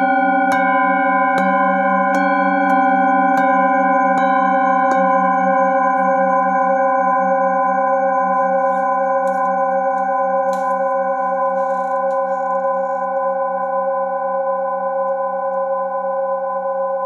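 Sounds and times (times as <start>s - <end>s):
singing bowls ringing: 0.0s - 17.0s.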